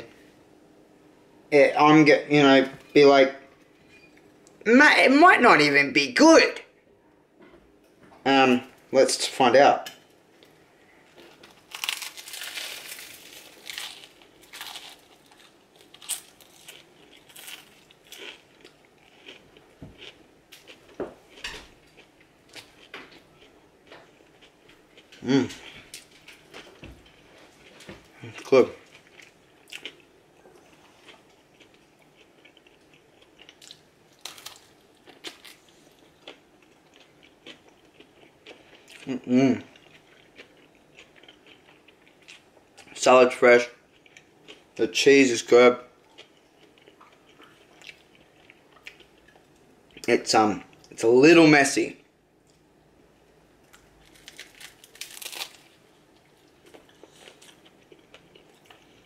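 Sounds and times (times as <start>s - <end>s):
person chewing food: 10.4s - 43.0s, 43.8s - 44.8s, 46.0s - 50.1s, 53.7s - 59.0s
food wrapper crinkles: 11.2s - 19.4s, 33.5s - 36.0s, 53.7s - 59.0s.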